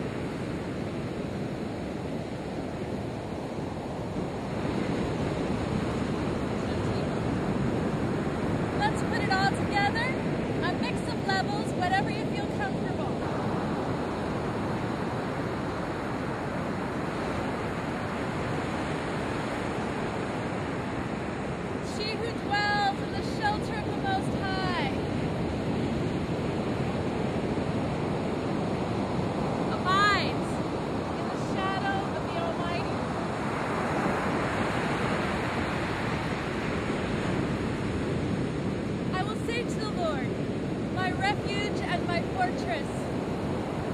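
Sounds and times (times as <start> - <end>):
ocean surf breaking on a beach: 0.0 - 43.9
wind noise on microphone: 0.0 - 43.9.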